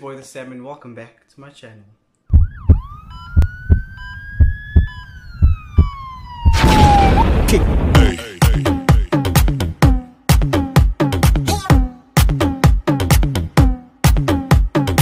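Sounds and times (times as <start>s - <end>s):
electronic dance beat: 2.3s - 6.6s, 8.0s - 15.0s
low heartbeat-like thumps: 2.3s - 7.2s
siren-like synth tone: 2.3s - 7.6s
noise sweep crash: 6.4s - 8.2s.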